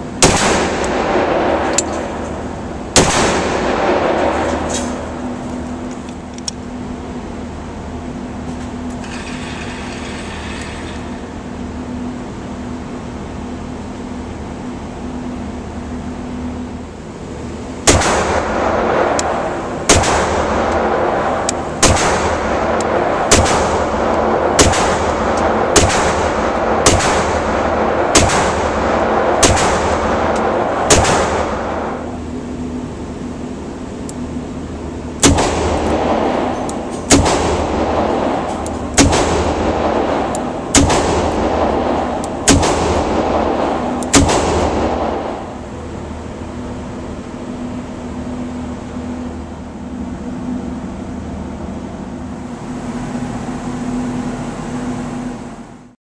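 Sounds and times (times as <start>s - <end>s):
steady hum: 0.0s - 56.0s
pistol gunshots echoing indoors: 0.2s - 5.9s, 17.8s - 32.3s, 35.2s - 46.6s.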